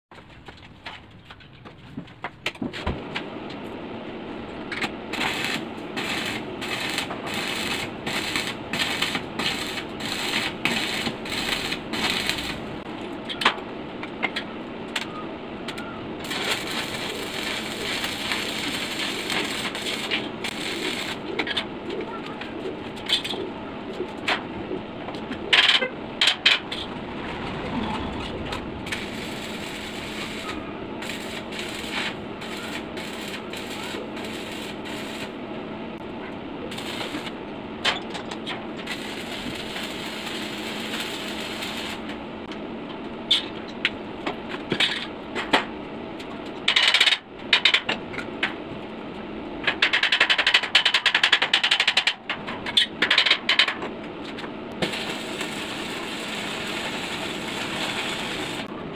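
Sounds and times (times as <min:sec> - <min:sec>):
welding arc crackling and sizzling: 0:04.6 - 0:13.1, 0:16.2 - 0:21.7, 0:28.1 - 0:35.4, 0:36.6 - 0:42.6, 0:52.8 - 0:58.7.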